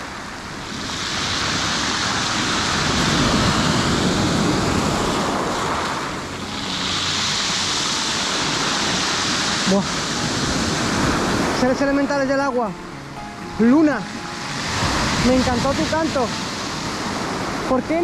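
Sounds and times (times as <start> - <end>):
surf breaking on pebble beach: 0.0 - 11.8.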